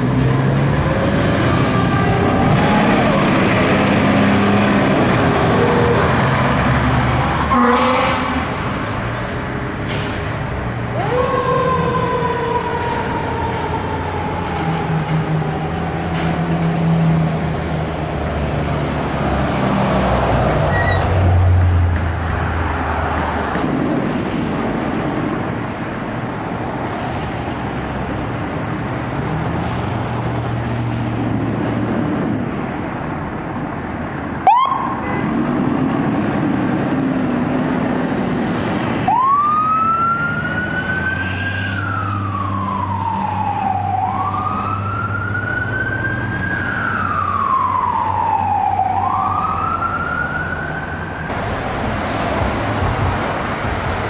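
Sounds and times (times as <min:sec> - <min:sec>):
fire truck siren wailing: 0:00.0 - 0:08.7, 0:10.8 - 0:17.7, 0:34.4 - 0:35.2, 0:37.4 - 0:54.0
street traffic: 0:00.0 - 0:54.0.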